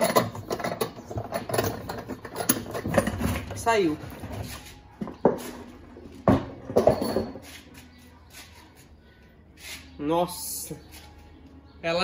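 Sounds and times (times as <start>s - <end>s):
machine parts knocking and clunking: 0.0s - 4.4s.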